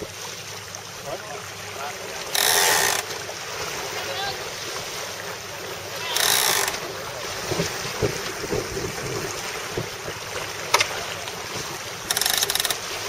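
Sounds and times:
water rushing past boat: 0:00.0 - 0:13.0
deck gear clicking: 0:02.3 - 0:03.1, 0:06.1 - 0:06.8, 0:12.1 - 0:12.8
wind buffeting microphone: 0:06.9 - 0:10.7.

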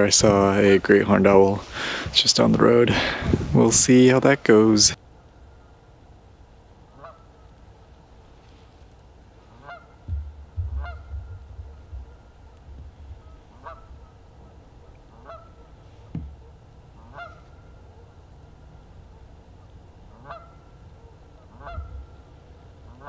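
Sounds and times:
distant bird calls: 0:05.0 - 0:23.0
short thump: 0:10.1 - 0:12.1, 0:16.1 - 0:16.4
low rumble: 0:10.1 - 0:15.0.

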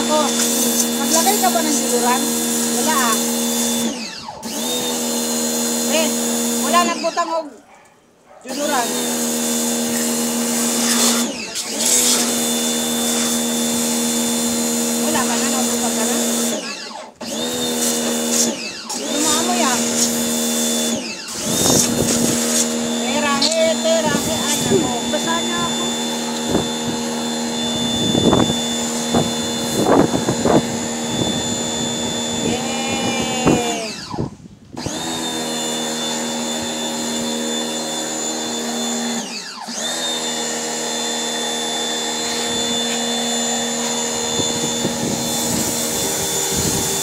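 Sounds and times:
water spray bursts: 0:00.0 - 0:03.8, 0:08.6 - 0:14.0, 0:17.7 - 0:20.4, 0:21.4 - 0:23.4
water jet spraying: 0:00.0 - 0:07.4, 0:08.5 - 0:16.7, 0:17.7 - 0:31.5, 0:40.5 - 0:47.0
pressure washer motor hum: 0:00.0 - 0:07.5, 0:08.5 - 0:47.0.

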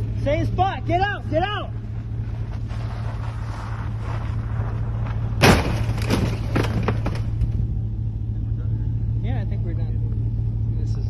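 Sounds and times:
vehicle engine running: 0:00.0 - 0:11.0
loud collision thud: 0:05.4 - 0:07.4.

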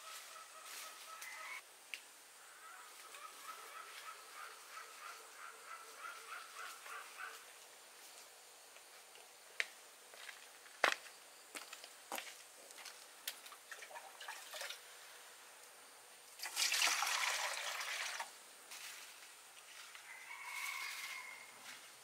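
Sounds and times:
water being poured and splashed: 0:13.7 - 0:14.8, 0:16.4 - 0:18.3.

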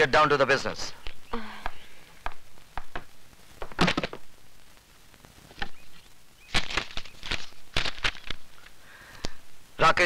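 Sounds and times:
footsteps tapping: 0:01.0 - 0:04.2
pages turning: 0:06.5 - 0:08.7.

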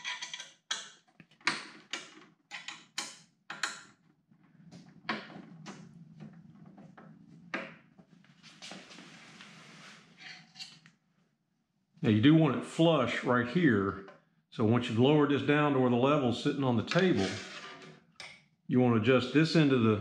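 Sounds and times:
metal table clicks and knocks: 0:00.0 - 0:04.0.

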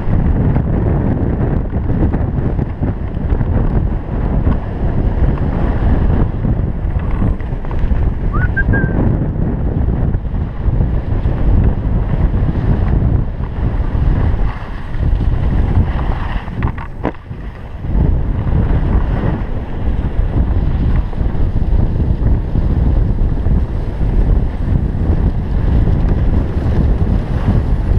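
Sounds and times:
wind buffeting microphone: 0:00.0 - 0:27.9
skis sliding on snow: 0:10.6 - 0:27.9.

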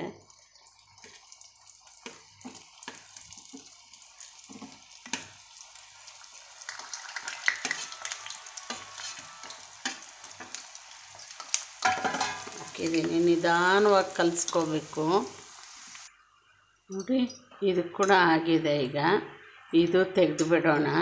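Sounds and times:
dough frying in hot oil: 0:00.0 - 0:16.1.

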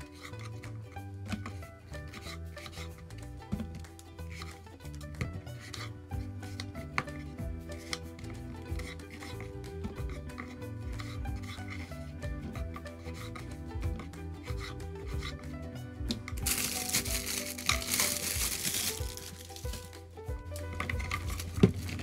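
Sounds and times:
knife cutting on wooden board: 0:00.0 - 0:15.5
background music: 0:00.0 - 0:22.0
plastic bag crinkling: 0:16.4 - 0:20.0.

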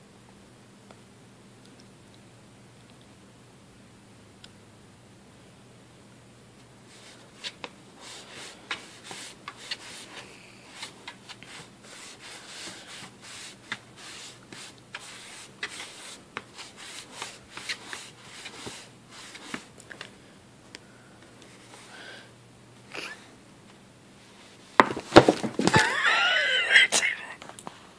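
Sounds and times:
cat claws scratching cardboard: 0:06.9 - 0:19.7.

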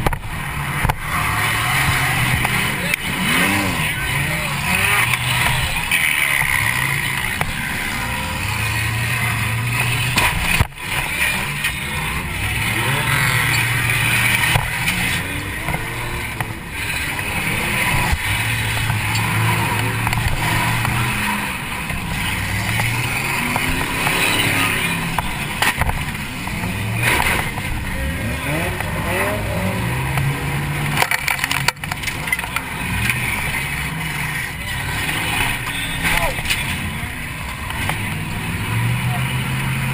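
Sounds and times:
car engine revving: 0:00.0 - 0:39.9.

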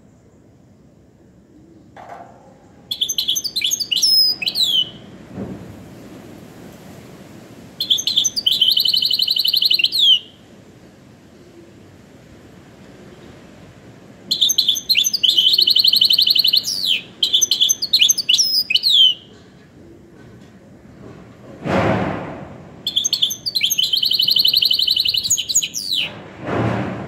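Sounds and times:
finch singing trills: 0:02.8 - 0:05.1, 0:07.8 - 0:10.4, 0:14.3 - 0:19.3, 0:22.9 - 0:26.2
short rushing noise: 0:25.9 - 0:27.0.

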